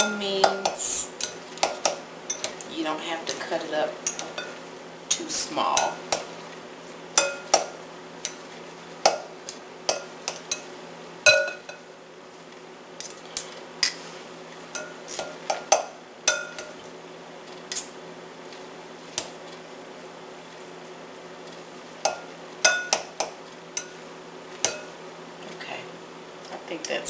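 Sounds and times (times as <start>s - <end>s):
cutlery clinking on glass bowl: 7.2s - 7.7s, 11.3s - 11.8s, 22.0s - 24.0s.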